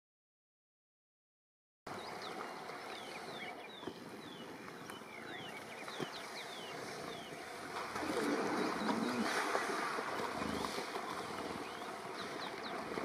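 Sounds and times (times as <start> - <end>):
bird chirping: 2.0 - 7.4.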